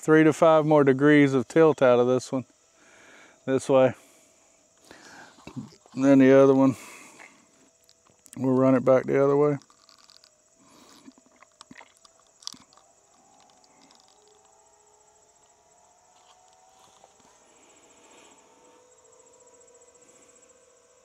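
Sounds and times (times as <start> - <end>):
crickets chirping: 0.0 - 21.0
small clicks: 9.6 - 14.6.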